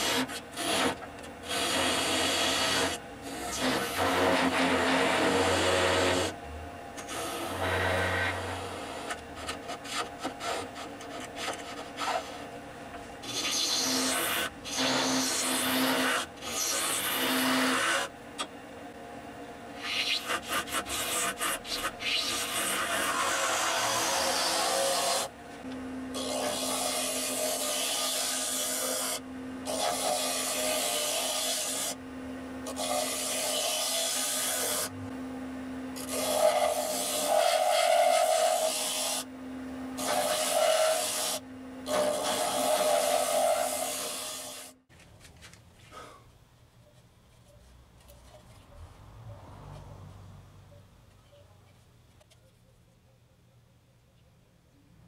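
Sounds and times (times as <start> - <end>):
hollowing tool scraping wood on lathe: 0.0 - 6.3, 7.0 - 12.4, 13.2 - 18.1, 19.8 - 25.3, 26.2 - 32.0, 36.0 - 39.3, 40.0 - 44.7
tool scraping spinning wood: 0.0 - 6.4, 7.0 - 12.5, 40.0 - 44.8.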